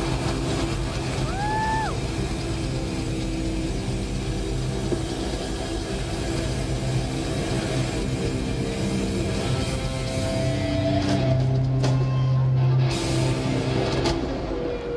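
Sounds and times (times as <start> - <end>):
rock band playing: 6.3 - 14.9.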